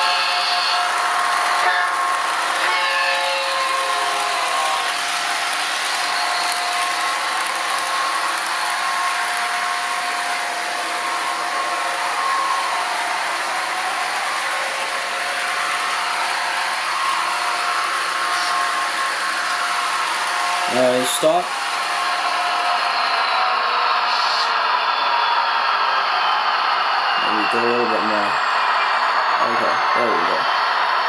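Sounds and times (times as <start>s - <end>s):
model cars rolling on track: 0.0s - 23.1s.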